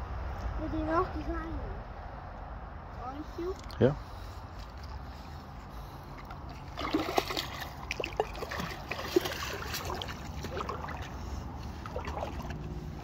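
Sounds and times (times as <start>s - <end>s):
feet wading through water: 4.5s - 13.0s.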